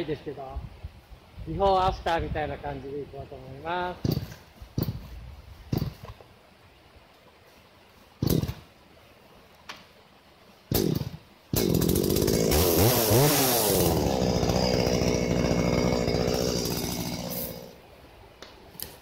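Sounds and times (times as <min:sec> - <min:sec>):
chainsaw starting and idling: 0:10.7 - 0:17.8.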